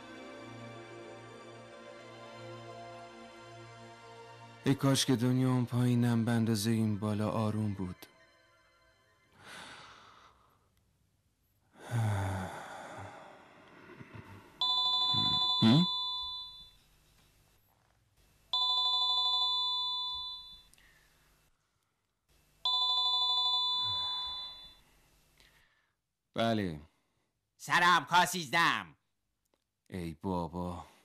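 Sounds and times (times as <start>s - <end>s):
telephone electronic ringing: 14.6s - 16.7s, 18.6s - 20.7s, 22.7s - 24.8s.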